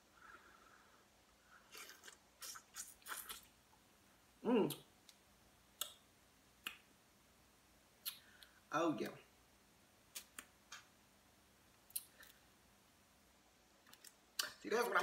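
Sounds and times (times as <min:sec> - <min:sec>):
person humming mm: 0:04.4 - 0:04.9.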